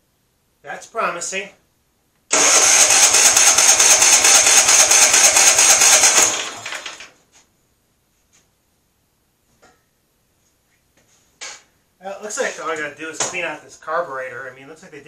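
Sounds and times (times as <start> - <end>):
lawn tractor engine sputtering: 2.3 - 7.1.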